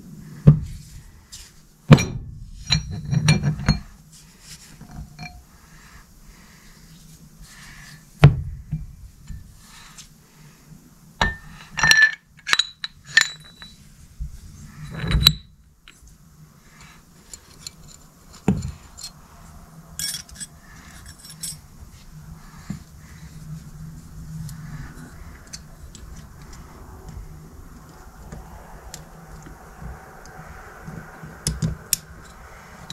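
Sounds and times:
low steady hum: 0.0 - 32.9
metal parts clinking and knocking: 11.2 - 13.8, 20.0 - 21.6.

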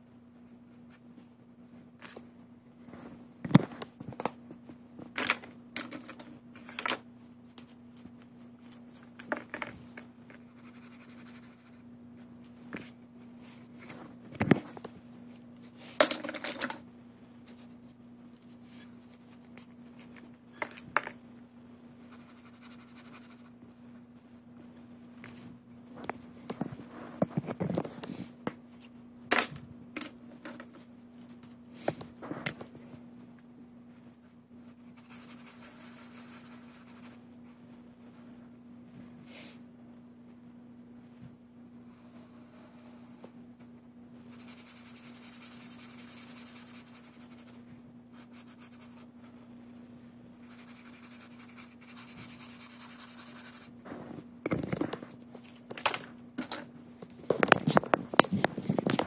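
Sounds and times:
faint low hum: 0.0 - 59.0
marker tip scratching paper: 44.3 - 47.6, 50.4 - 53.7.

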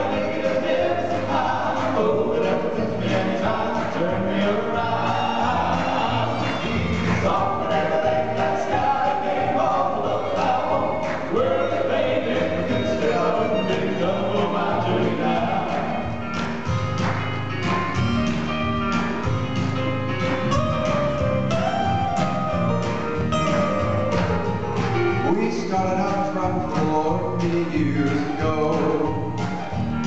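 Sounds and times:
male vocal quartet singing in harmony: 0.0 - 16.5, 25.2 - 29.9
live band with bass and drums: 0.0 - 30.0.

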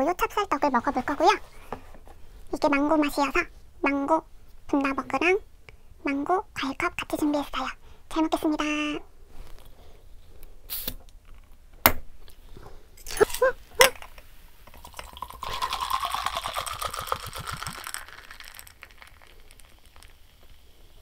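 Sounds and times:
drink pouring into glass: 14.6 - 20.8
drink fizzing: 14.6 - 21.0.

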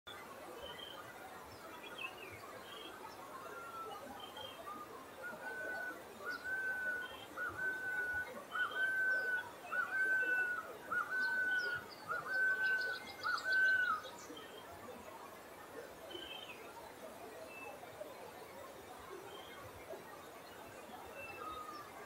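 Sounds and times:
faint bird chirps: 0.1 - 22.0
bird whistling phrases: 4.7 - 14.0.

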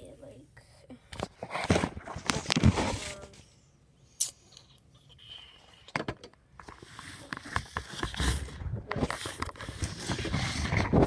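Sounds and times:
rustling and rubbing on microphone: 1.2 - 3.4, 6.6 - 11.0.

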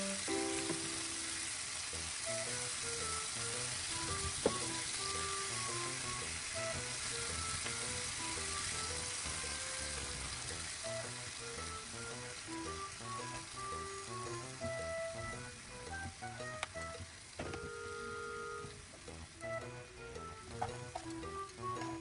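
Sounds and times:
meat and peppers sizzling in pan: 0.0 - 16.4.

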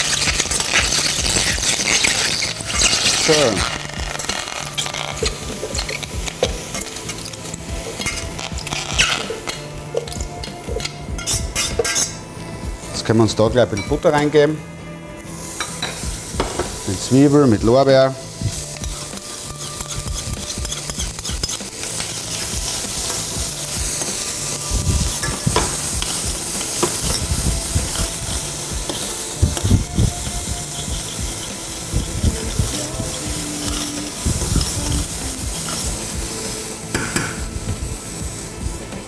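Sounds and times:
utensil scraping a pan: 0.0 - 12.2, 16.6 - 37.4
onion sizzling in butter: 0.0 - 14.6, 15.2 - 39.0.

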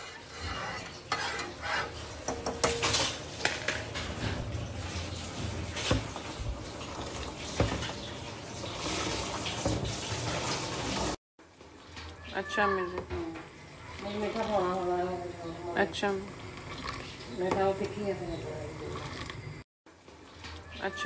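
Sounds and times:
steel pots and utensils clinking: 0.0 - 10.6.

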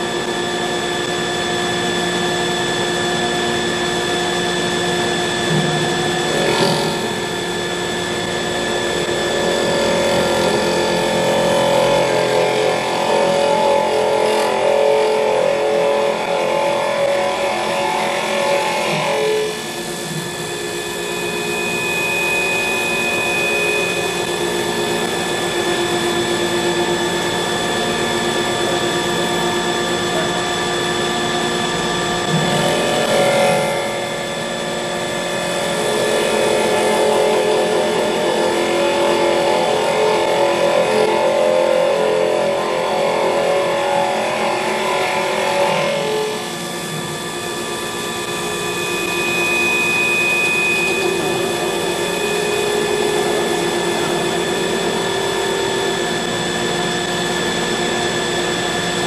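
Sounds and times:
tool cutting spinning wood: 0.0 - 28.1, 31.8 - 59.0
lathe motor whine: 0.0 - 59.0.

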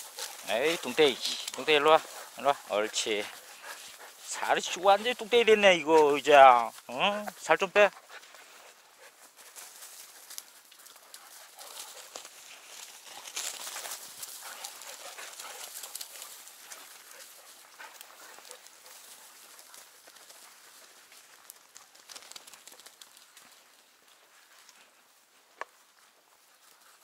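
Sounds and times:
small dog sounds: 0.0 - 5.3
dogs rustling in long grass: 0.0 - 27.0.

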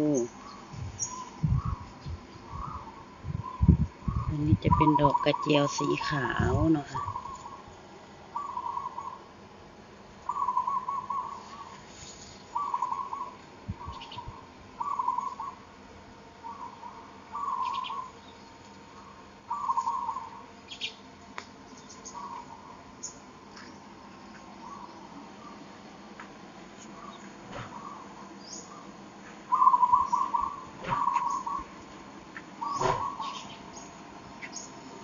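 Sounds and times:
bird trilling calls: 0.0 - 7.7, 8.3 - 9.3, 10.2 - 11.8, 12.5 - 15.6, 16.4 - 21.0, 21.7 - 23.2, 24.6 - 25.7, 26.9 - 31.9, 32.6 - 34.8
high bird chirps: 16.4 - 18.4, 29.5 - 31.8, 32.6 - 34.8.

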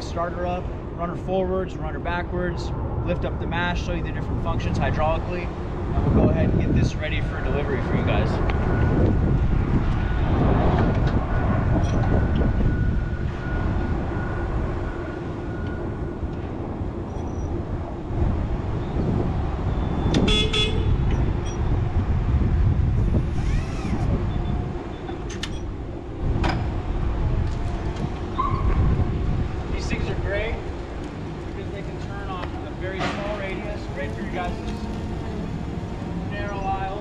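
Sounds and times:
steady low rumble: 0.0 - 37.0
truck horn: 20.2 - 21.0.

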